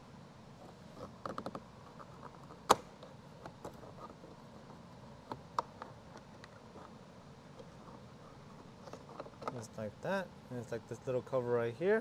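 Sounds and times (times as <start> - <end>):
sharp plastic snap: 2.7 - 3.1.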